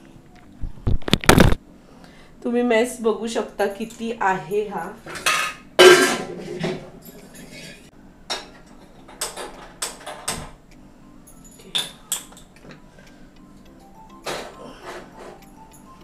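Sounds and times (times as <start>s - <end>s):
steel vessels clattering: 5.0s - 10.3s.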